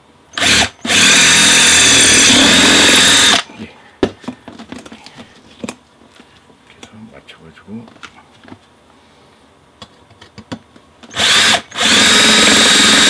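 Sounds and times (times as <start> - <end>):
cordless drill boring through metal: 0.4 - 3.5, 11.1 - 13.0.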